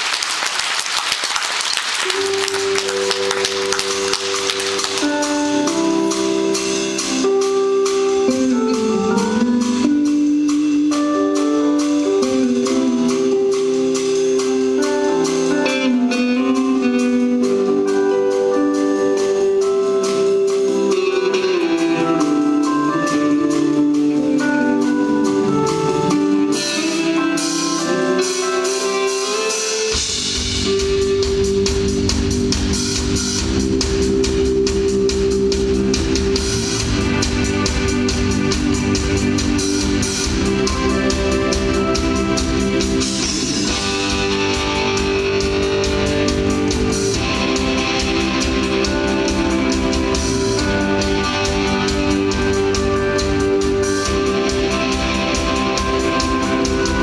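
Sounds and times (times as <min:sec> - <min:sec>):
crowd applause: 0:00.0 - 0:05.7
live band playing: 0:00.0 - 0:57.0.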